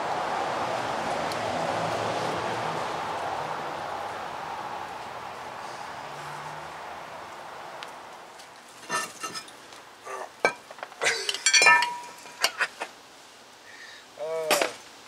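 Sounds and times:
metal parts clinking: 11.0s - 12.7s.

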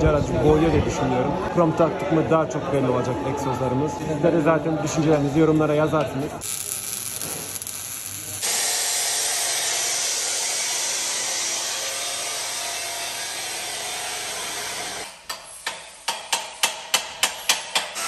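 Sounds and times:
power tool cutting pipe: 6.4s - 15.1s.

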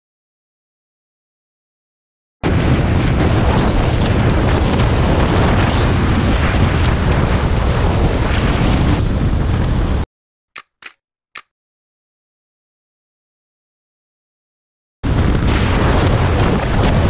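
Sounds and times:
wind buffeting microphone: 2.4s - 10.0s, 15.1s - 17.0s
short click: 10.6s - 11.5s.

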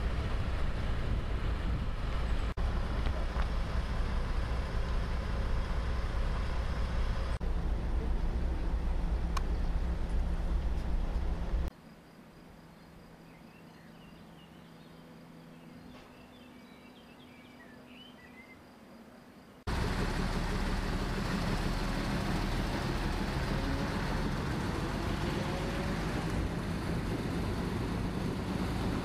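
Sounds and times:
diesel railcar rumbling: 0.0s - 11.7s, 19.7s - 29.0s
small birds chirping: 12.6s - 18.9s.

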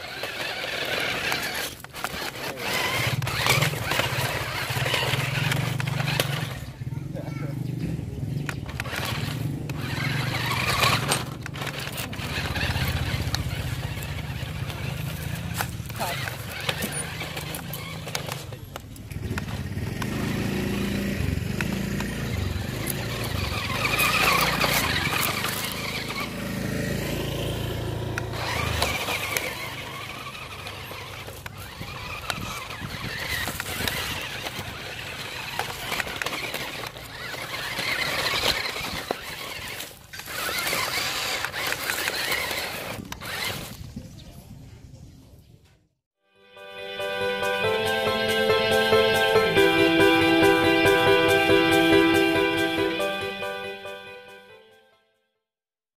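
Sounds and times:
tyres grinding over rubble: 0.0s - 6.9s, 8.4s - 20.2s, 20.8s - 26.4s, 28.1s - 43.8s
electric motor and gearbox whining: 0.0s - 43.8s.

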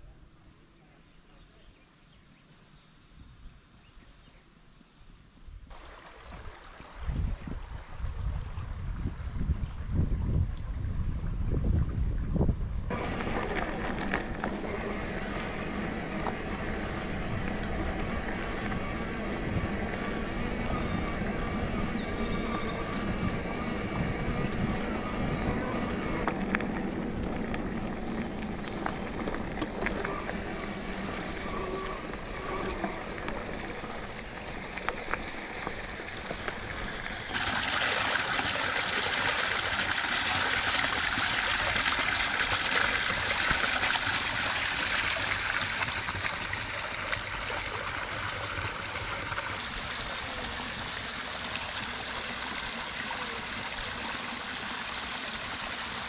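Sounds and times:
bike tyre rumble on dirt trail: 7.1s - 50.7s
water pouring into stone basin: 22.0s - 56.0s.

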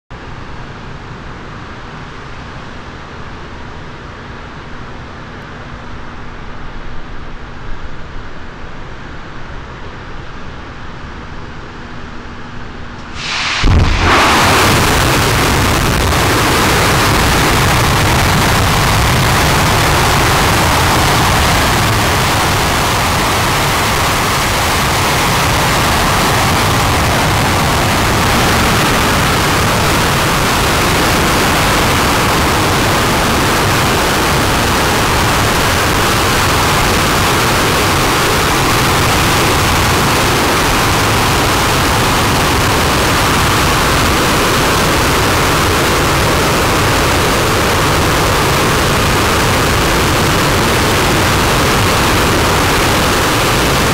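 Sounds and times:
rocket engine roaring: 13.0s - 53.9s.

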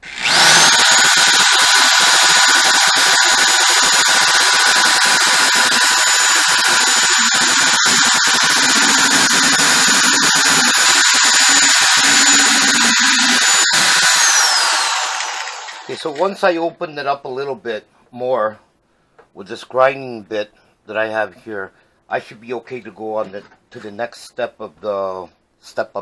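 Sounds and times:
electric drill grinding steel: 0.0s - 16.2s.

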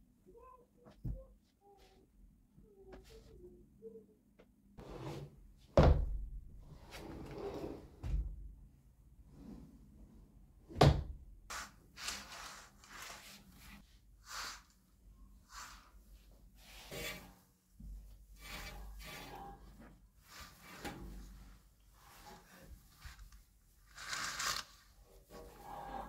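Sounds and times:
chair scraping and rustling: 6.8s - 8.1s
rubbing and swishing: 11.5s - 17.4s.

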